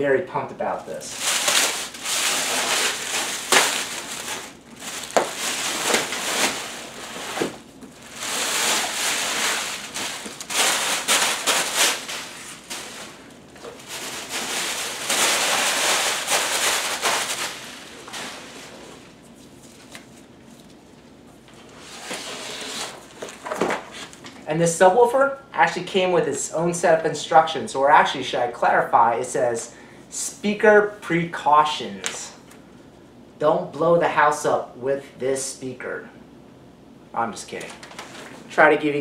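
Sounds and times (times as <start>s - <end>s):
plastic bag crinkling: 0.6s - 21.2s, 37.5s - 38.5s.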